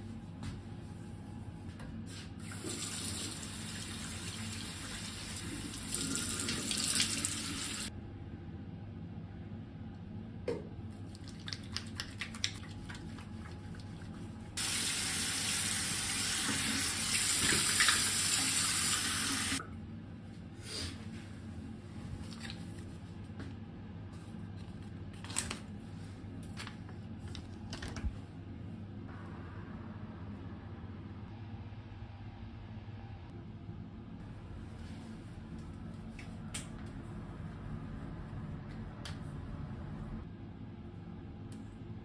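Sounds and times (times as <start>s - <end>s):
bathroom tap running: 2.4s - 7.9s, 14.6s - 19.6s
wet hands washing face: 10.9s - 19.6s.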